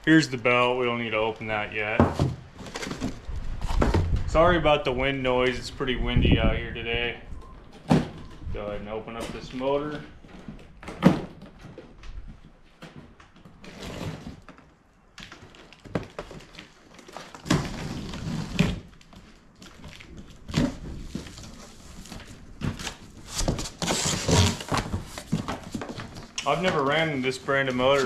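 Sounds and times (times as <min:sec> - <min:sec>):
cardboard scraping and rustling: 0:01.4 - 0:04.4, 0:12.7 - 0:14.6, 0:15.5 - 0:28.0.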